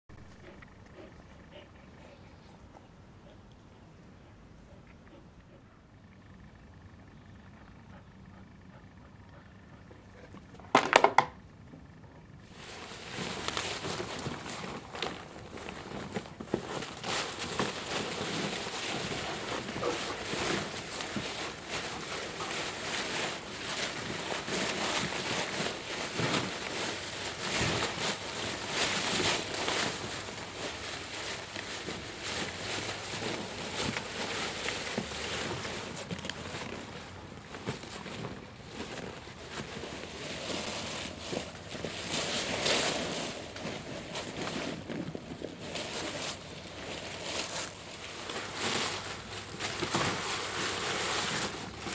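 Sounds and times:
dry leaves rustling and crunching: 12.4s - 51.9s.

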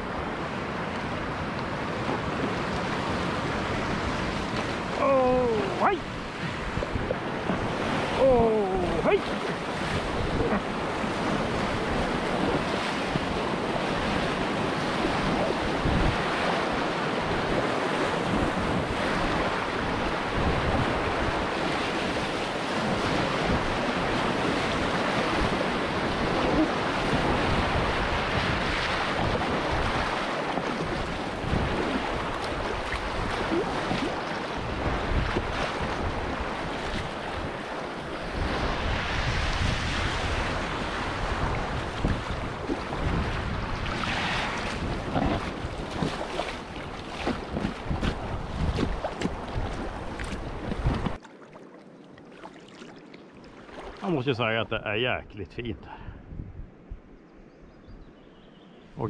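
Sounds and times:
wind buffeting microphone: 0.0s - 51.2s, 55.8s - 58.2s.

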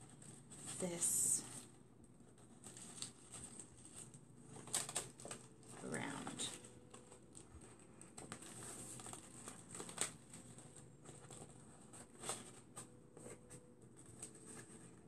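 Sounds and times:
paper rustling and crinkling: 0.0s - 15.0s.

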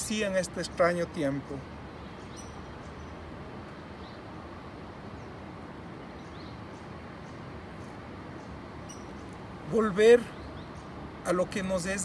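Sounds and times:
low rumble of wind or traffic: 0.0s - 12.0s
faint high bird chirps: 1.9s - 3.2s, 6.0s - 9.4s.

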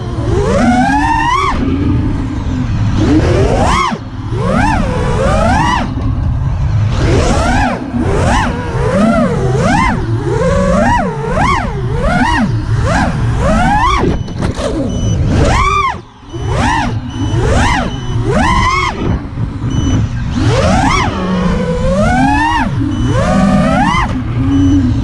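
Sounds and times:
drone motors whining: 0.0s - 25.0s.

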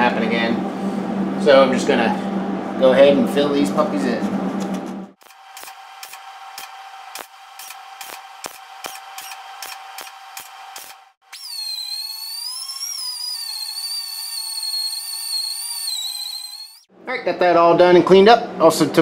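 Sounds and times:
steady welder hum: 4.6s - 16.9s
grinder whining: 5.2s - 16.9s
welder crackling pops: 5.2s - 16.9s.

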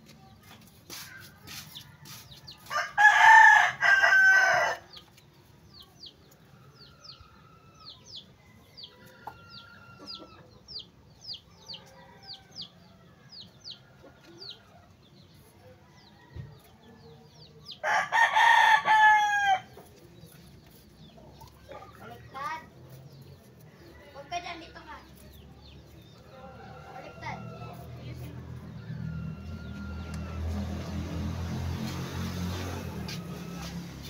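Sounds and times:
rooster crowing: 2.0s - 4.8s, 17.8s - 19.7s, 26.3s - 27.9s.

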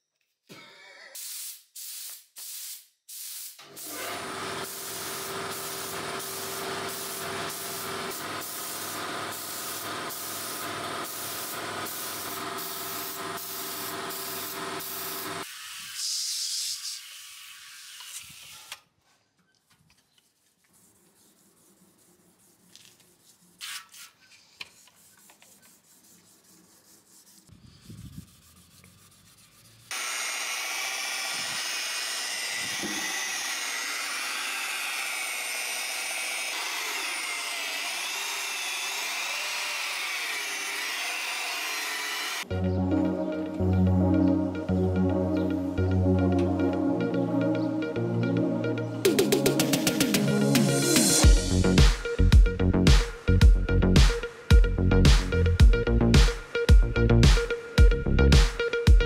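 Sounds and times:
spray gun hissing: 1.2s - 4.0s, 4.6s - 17.5s
sanding block rubbing: 20.3s - 30.6s.

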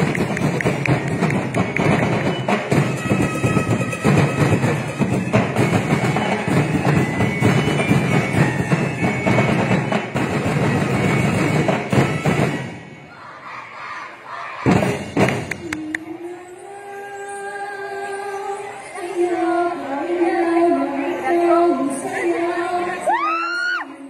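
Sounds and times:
drum ensemble playing: 0.0s - 13.1s, 14.6s - 15.8s.

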